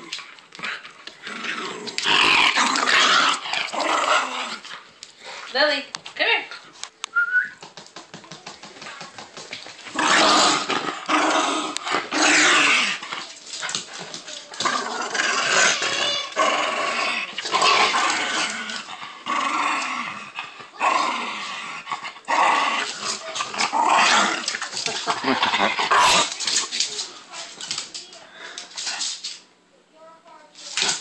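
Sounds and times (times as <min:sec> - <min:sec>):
dog growling in play: 0:00.0 - 0:04.9, 0:09.9 - 0:13.3, 0:14.5 - 0:26.3.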